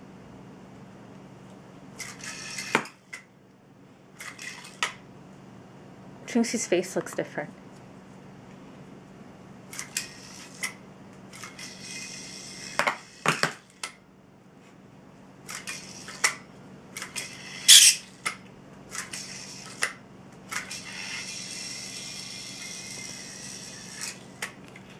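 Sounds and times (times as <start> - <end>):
yo-yo clicks and whirs: 2.0 - 3.3, 4.2 - 5.0, 9.7 - 14.0, 15.4 - 24.9.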